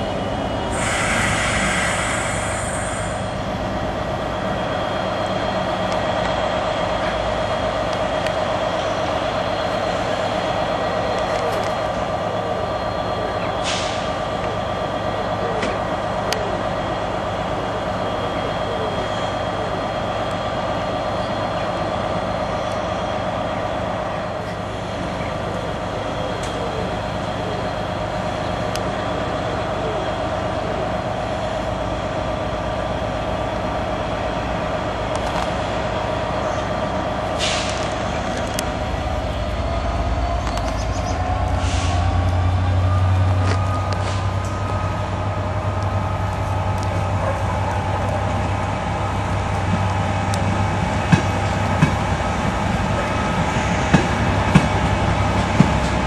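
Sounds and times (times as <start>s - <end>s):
diesel train humming and whining: 0.0s - 56.0s
low train rumble: 0.0s - 56.0s
short hisses of air: 0.7s - 3.4s, 37.4s - 37.9s.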